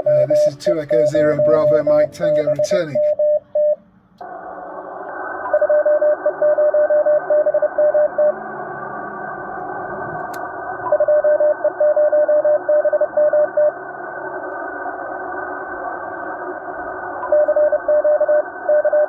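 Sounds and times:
radio static hiss: 0:00.0 - 0:03.3, 0:04.2 - 0:19.0
morse code beeping tone: 0:00.0 - 0:03.8, 0:05.5 - 0:08.4, 0:10.8 - 0:13.7.

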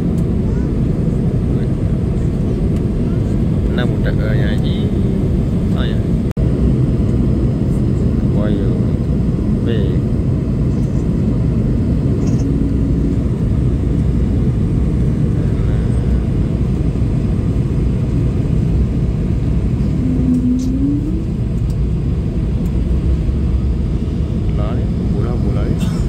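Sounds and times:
jet airliner cabin drone: 0:00.0 - 0:26.0
faint rising tone: 0:19.8 - 0:21.5.

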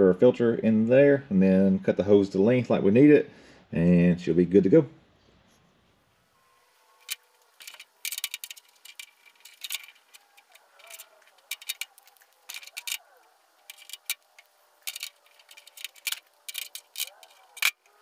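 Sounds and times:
small metal fittings clicking on tray: 0:07.0 - 0:18.0.

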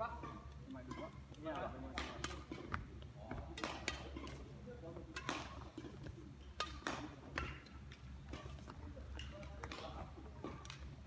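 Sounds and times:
racket striking shuttlecock: 0:01.9 - 0:02.9, 0:03.6 - 0:04.4, 0:05.1 - 0:10.8.

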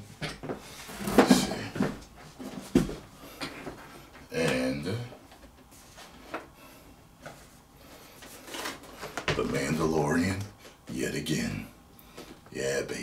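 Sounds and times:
packaging rustling and clicking: 0:08.2 - 0:09.4.

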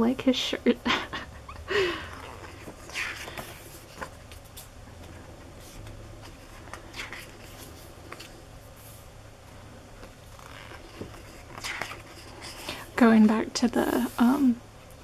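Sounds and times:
book pages turning: 0:02.0 - 0:09.1, 0:10.0 - 0:12.9.

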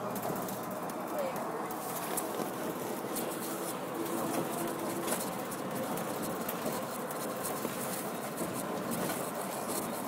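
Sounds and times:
road and wind noise in car: 0:00.0 - 0:10.0.

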